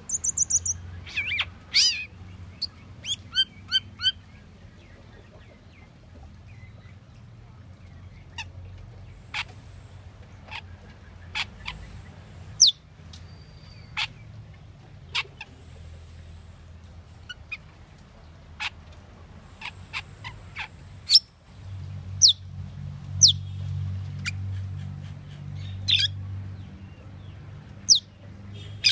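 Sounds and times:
starling calls: 0:00.0 - 0:04.2, 0:09.1 - 0:14.2, 0:19.5 - 0:21.3, 0:24.2 - 0:26.2, 0:27.9 - 0:28.9.

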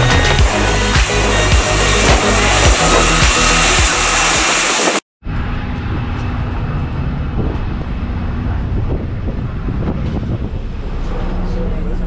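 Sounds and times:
jet engines whining and rumbling: 0:00.3 - 0:12.0
quieter steady rumble: 0:05.2 - 0:12.0.

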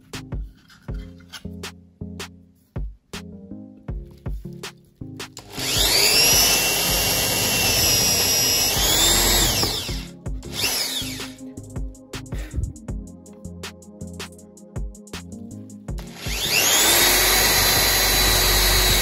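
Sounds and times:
background music with steady beat: 0:00.0 - 0:19.0
cordless drill boring into wood: 0:05.4 - 0:11.3, 0:16.0 - 0:19.0.

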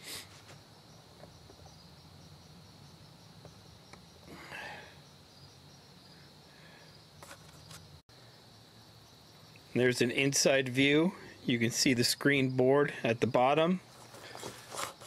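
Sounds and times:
crickets trilling: 0:00.0 - 0:15.0
brief rustles: 0:07.2 - 0:07.9, 0:14.0 - 0:15.0.

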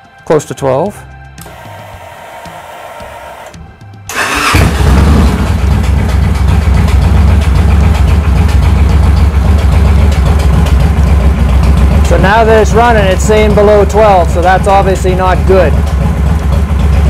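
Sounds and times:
motorcycle engine starting and idling: 0:01.4 - 0:17.0.

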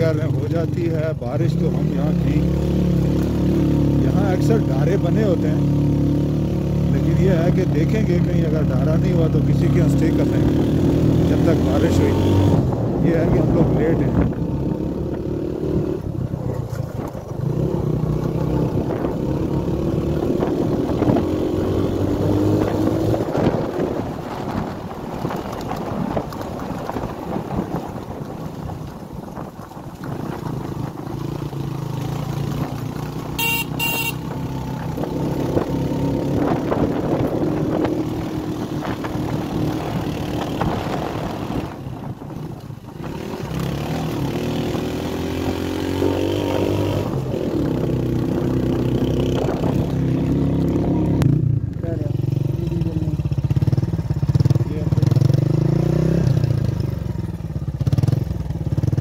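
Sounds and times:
motorbike engine revving: 0:01.5 - 0:27.9, 0:30.0 - 0:41.9, 0:42.9 - 0:59.0
horn beeps: 0:33.4 - 0:34.3.

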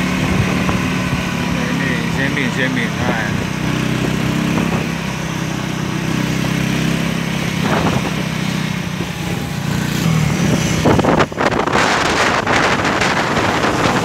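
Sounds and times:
wind buffeting microphone: 0:00.0 - 0:01.6, 0:03.0 - 0:05.2, 0:07.4 - 0:14.0
motorcycle engine cruising: 0:00.0 - 0:14.0.

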